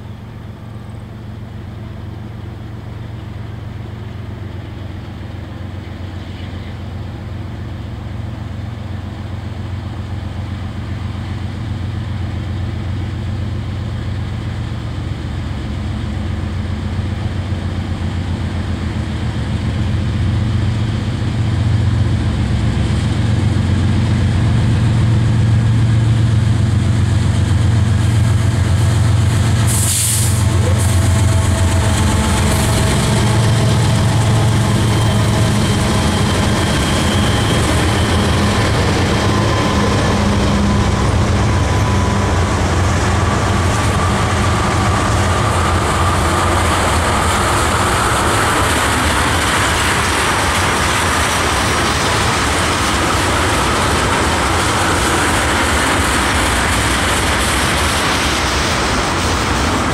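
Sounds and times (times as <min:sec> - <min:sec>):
locomotive engine drone: 0:00.0 - 0:59.9
brief hiss: 0:29.6 - 0:31.0.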